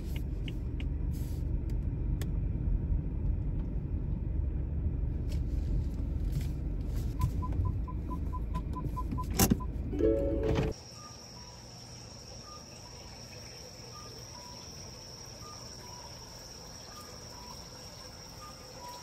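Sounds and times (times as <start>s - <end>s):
high-pitched insect trill: 10.8s - 19.0s.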